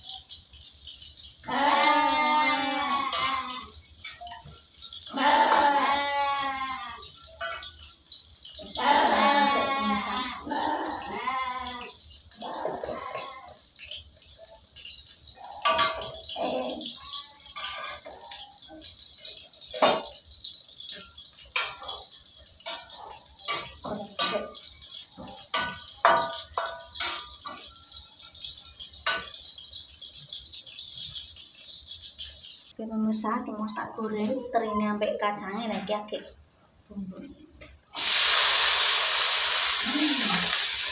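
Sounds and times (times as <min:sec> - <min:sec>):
oil sizzling in a wok: 0:00.0 - 0:40.9
metal spatula scraping pan: 0:01.6 - 0:06.6, 0:15.4 - 0:32.0.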